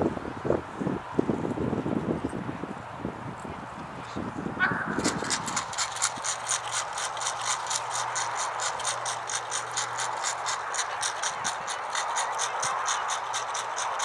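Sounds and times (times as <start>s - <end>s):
rapid mechanical clicking: 5.0s - 14.0s.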